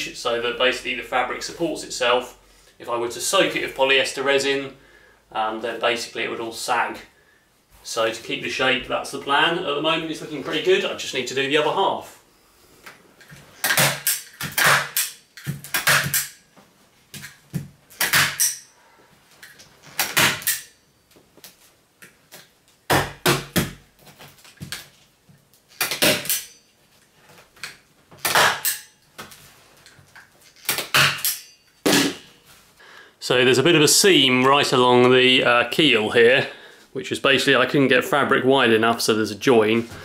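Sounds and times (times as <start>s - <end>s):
staple gun snapping: 20.0s - 20.7s, 25.8s - 26.6s.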